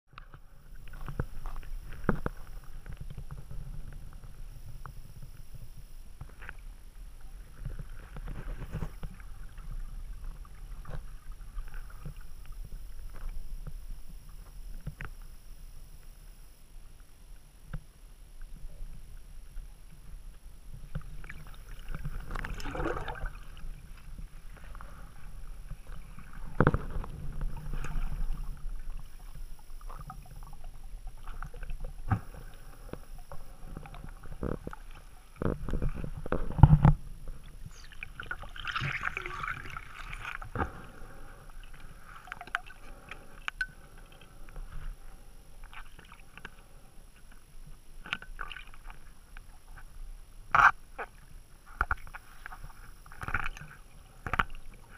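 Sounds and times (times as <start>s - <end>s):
low underwater rumble: 0.1s - 54.9s
muffled underwater knocks and thumps: 20.8s - 29.2s, 29.8s - 41.0s
bubbling: 20.8s - 44.7s.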